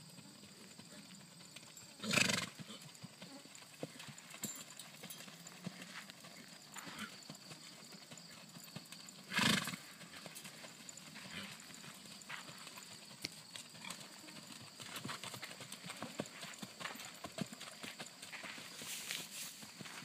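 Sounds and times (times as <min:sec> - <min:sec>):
hoofbeats on sand: 0:00.0 - 0:20.0.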